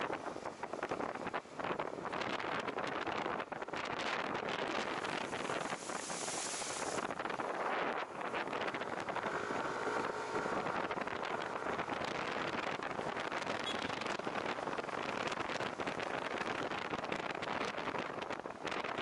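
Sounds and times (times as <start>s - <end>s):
wind buffeting microphone: 0.0s - 19.0s
tyres hissing on wet road: 4.7s - 12.7s
water splashing: 5.0s - 7.3s.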